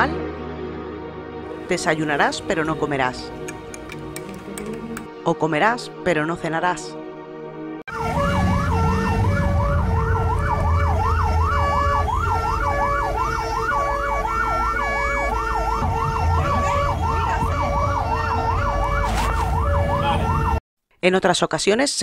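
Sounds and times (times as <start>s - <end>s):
vehicle engine hum: 3.3s - 5.1s, 7.9s - 20.4s
ambulance siren wailing: 7.9s - 20.6s.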